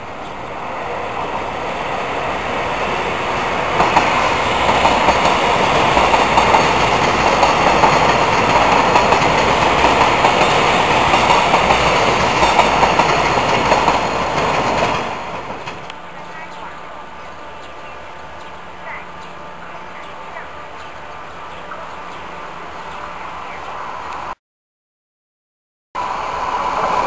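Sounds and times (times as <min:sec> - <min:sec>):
train rumbling past: 0:00.0 - 0:24.4, 0:26.0 - 0:27.0
wheels clacking over rail joints: 0:02.8 - 0:16.0.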